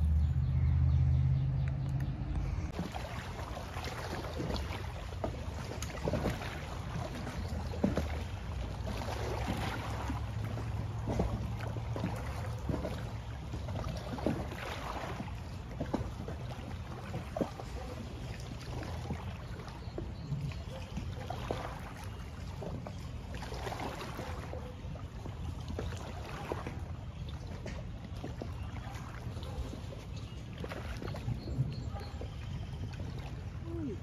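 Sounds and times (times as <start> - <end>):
steady low rumble: 0.0 - 3.7
waves lapping against rocks: 2.4 - 34.0.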